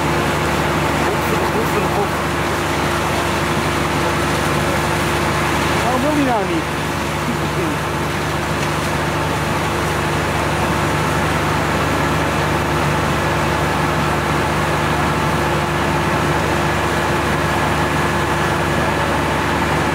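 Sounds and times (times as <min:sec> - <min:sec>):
truck engines humming with hiss: 0:00.0 - 0:19.9.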